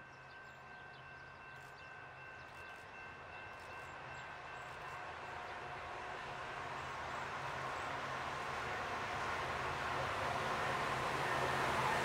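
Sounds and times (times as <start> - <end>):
rail noise: 0.1 - 12.0
diesel train engine hum: 3.9 - 12.0.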